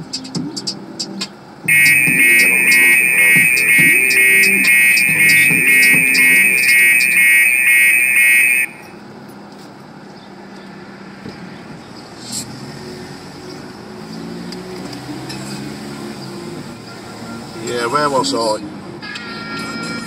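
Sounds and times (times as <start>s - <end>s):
van cabin road noise: 0.0s - 20.0s
electronic censor tone: 1.7s - 9.0s.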